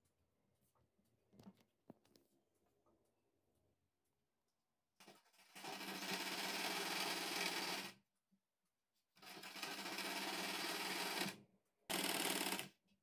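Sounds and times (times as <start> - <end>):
sewing machine stitching: 5.0 - 8.0, 9.2 - 12.8.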